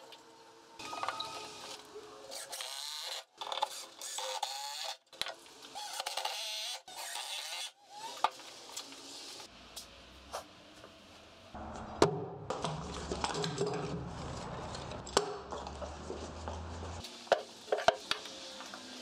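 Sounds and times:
power drill driving screws: 0.8 - 5.0, 5.7 - 8.4.

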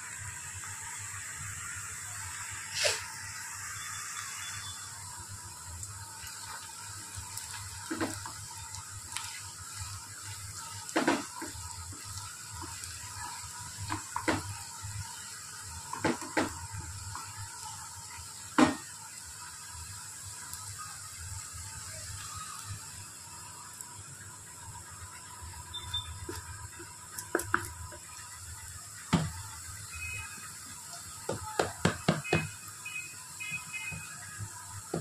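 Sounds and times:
onions sizzling in hot oil: 0.0 - 35.0
wooden spoon knocking on pan: 10.9 - 11.6, 13.8 - 14.5, 15.9 - 16.6, 18.6 - 18.8, 29.1 - 29.4, 31.2 - 32.6.

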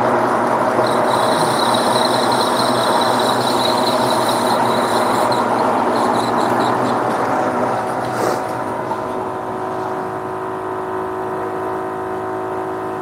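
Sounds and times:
metal lathe humming: 0.0 - 9.6
high whine of cutting tool: 0.0 - 9.7.

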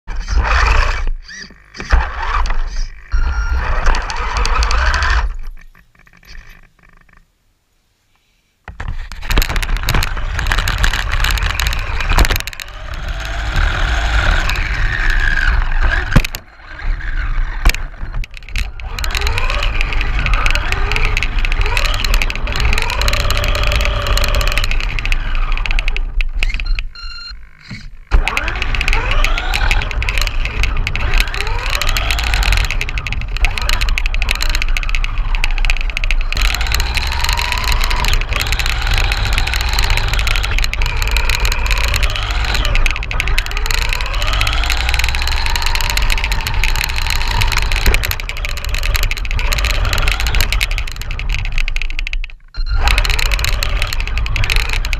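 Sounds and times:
rc car motor whining: 0.1 - 6.6, 9.0 - 54.9
chassis rattle on asphalt: 8.7 - 27.1, 27.7 - 54.9.

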